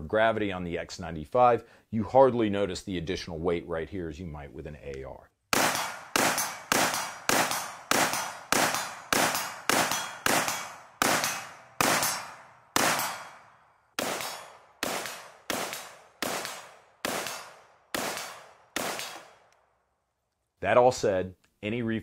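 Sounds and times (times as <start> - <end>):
rifle gunshots with echo: 5.5 - 19.5.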